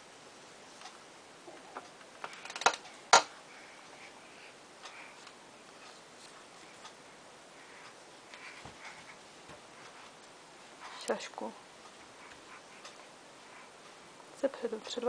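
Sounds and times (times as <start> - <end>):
small clicks and knocks: 0.8 - 3.3.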